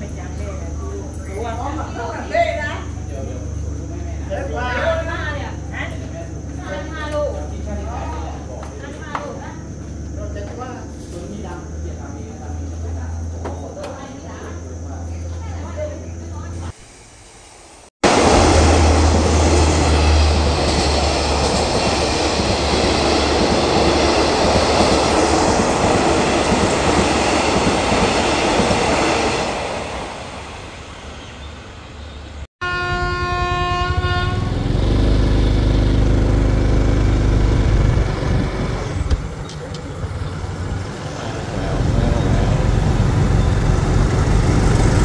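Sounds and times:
passenger train rushing past: 16.0 - 36.7, 38.0 - 45.0
locomotive horn: 32.6 - 35.2
diesel engine rumbling: 32.8 - 45.0.

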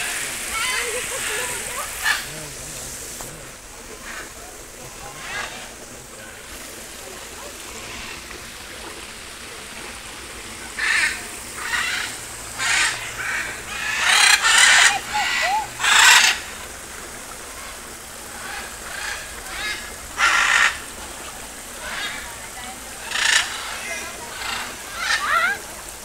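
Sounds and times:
macaws squawking: 0.0 - 2.6, 4.0 - 6.7, 10.5 - 16.7, 17.6 - 25.7.

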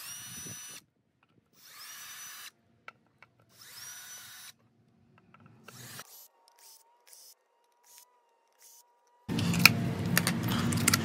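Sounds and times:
cordless driver whining: 0.0 - 0.8, 5.3 - 11.0.

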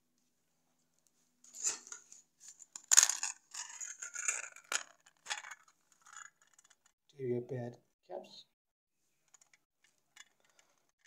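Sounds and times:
small parts rattling and clinking: 1.6 - 6.9, 9.2 - 11.0.

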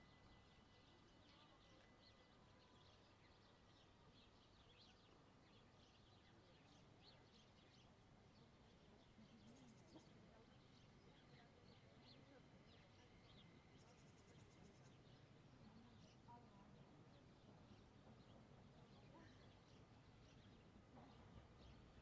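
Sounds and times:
faint small bird chirps: 0.0 - 22.0.

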